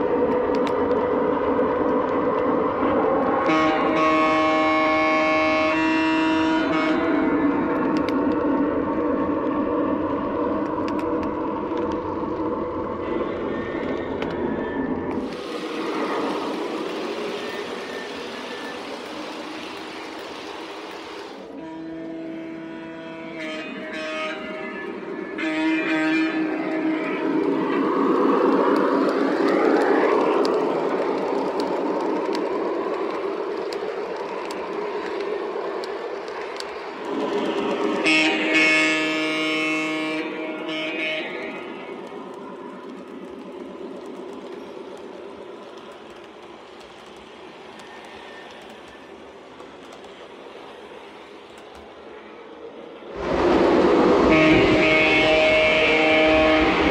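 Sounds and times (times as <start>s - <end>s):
light track clicks: 0.0s - 3.6s, 7.6s - 13.0s, 13.8s - 21.6s, 26.6s - 38.6s, 40.2s - 53.2s
clicks at rail joints: 0.2s - 2.5s, 28.4s - 38.0s, 51.5s - 52.1s
model train wheels rumbling: 15.1s - 22.2s
toy train wheels rumbling: 26.6s - 39.3s.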